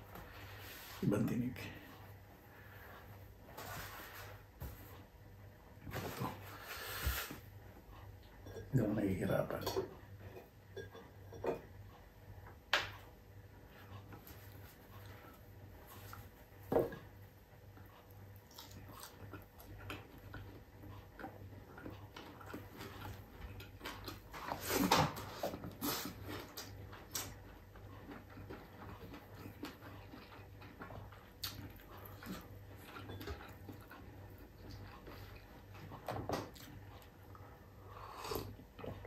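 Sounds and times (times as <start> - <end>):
person chewing: 18.4 - 24.9, 25.5 - 35.5.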